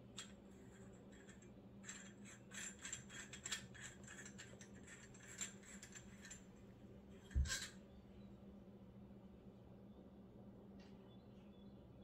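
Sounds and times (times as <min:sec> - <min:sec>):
small parts clicking and rattling: 0:00.0 - 0:06.5
faint steady low hum: 0:00.0 - 0:12.0.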